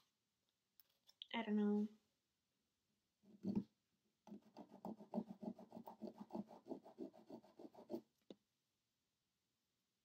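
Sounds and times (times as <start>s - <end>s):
nail file scraping fingernails: 4.3s - 8.0s.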